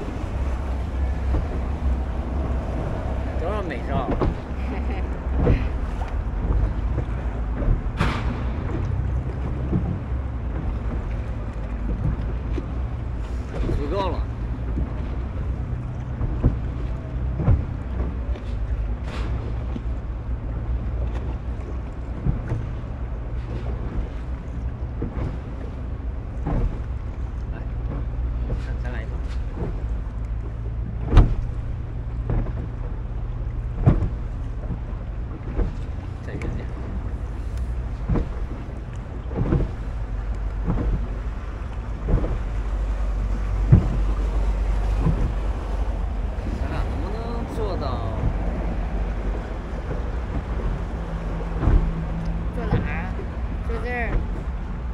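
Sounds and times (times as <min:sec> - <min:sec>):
wind on microphone: 0:00.0 - 0:27.6, 0:30.7 - 0:54.9
boat engine humming: 0:00.0 - 0:54.9
gust or splash: 0:00.0 - 0:54.9
steady low rumble: 0:00.0 - 0:54.9
water noise: 0:00.0 - 0:54.9
sharp knocks: 0:06.5 - 0:11.1.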